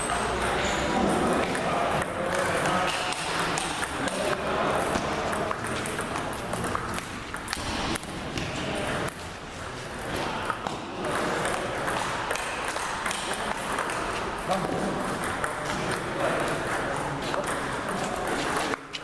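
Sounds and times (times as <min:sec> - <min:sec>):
table tennis balls clicking: 0:00.0 - 0:19.0.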